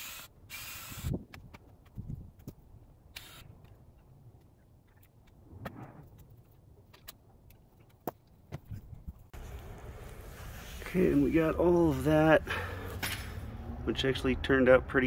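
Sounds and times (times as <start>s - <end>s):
short rustle: 9.4s - 12.1s.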